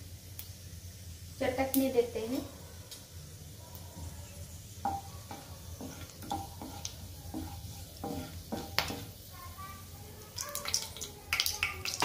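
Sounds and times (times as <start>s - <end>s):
spices sizzling in hot oil: 0.0s - 12.0s
spatula scraping pan: 4.7s - 9.9s.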